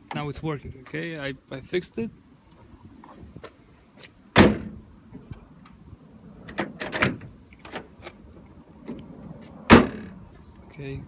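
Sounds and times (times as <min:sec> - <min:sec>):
tailgate slamming shut: 0:04.3 - 0:04.8, 0:06.5 - 0:07.9, 0:09.7 - 0:10.2.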